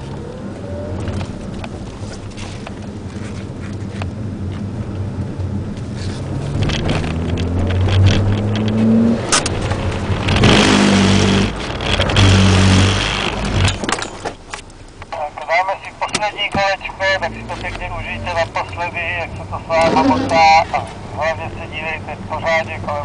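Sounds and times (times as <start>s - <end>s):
car engine revving: 4.3s - 13.9s, 16.9s - 23.0s.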